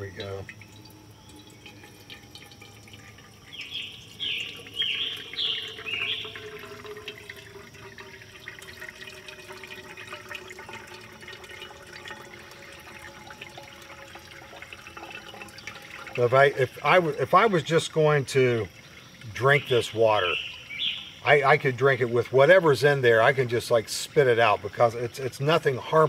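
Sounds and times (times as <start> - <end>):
bird chirps: 0.0 - 1.8, 3.4 - 6.8, 18.7 - 21.4
water dripping into metal cup: 0.0 - 26.0.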